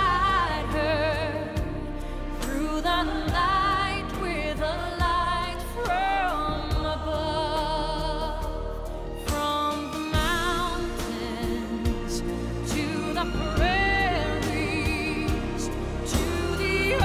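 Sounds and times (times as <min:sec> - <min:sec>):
person singing with vibrato: 0:00.0 - 0:17.0
slow low drum beat: 0:05.0 - 0:07.4, 0:10.2 - 0:17.0.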